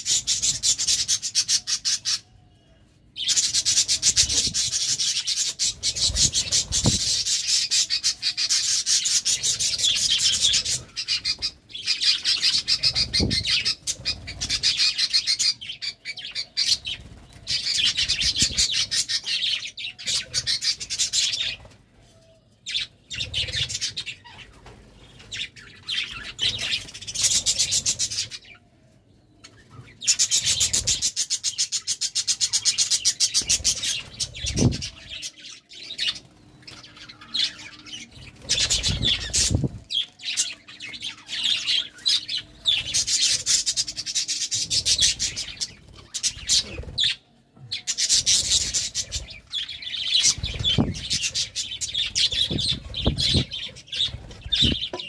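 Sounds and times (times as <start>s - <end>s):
wings fluttering: 3.8s - 7.5s, 38.1s - 40.1s, 48.1s - 55.0s.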